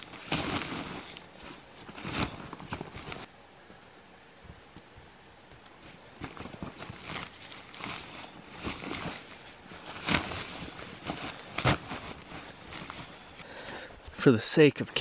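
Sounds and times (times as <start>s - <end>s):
plastic bags rustling and crinkling: 0.0s - 3.3s, 5.8s - 13.4s.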